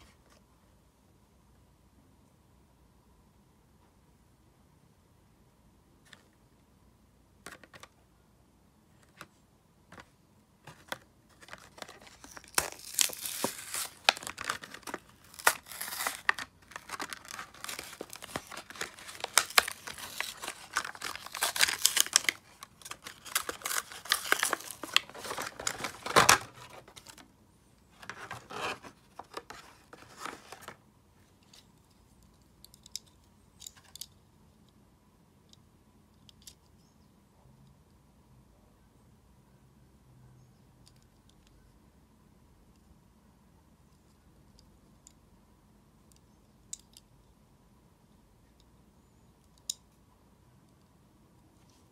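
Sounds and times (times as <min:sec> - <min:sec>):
card packaging ripping and crinkling: 0:10.7 - 0:27.2, 0:28.0 - 0:30.8.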